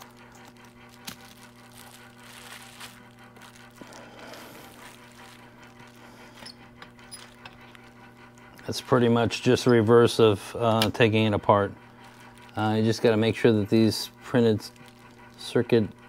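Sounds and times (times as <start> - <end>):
faint plastic crinkles: 0.0 - 8.0, 11.8 - 15.7
steady low hum: 0.0 - 16.0.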